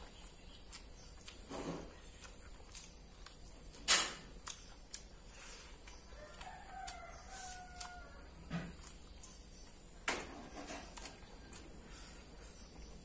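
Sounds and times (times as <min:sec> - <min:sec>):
crunch of biting: 0:00.0 - 0:09.8
chewing: 0:00.0 - 0:12.9
rooster crowing: 0:06.1 - 0:08.5.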